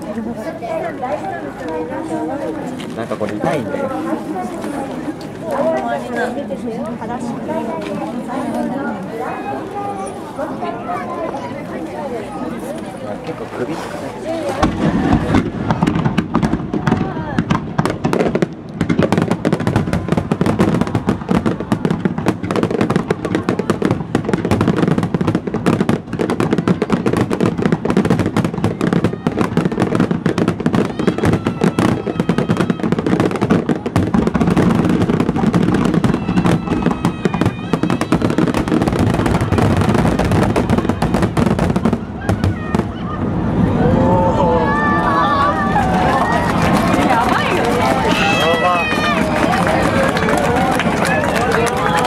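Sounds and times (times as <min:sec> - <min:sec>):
fireworks booms and crackle: 0:13.7 - 0:52.0.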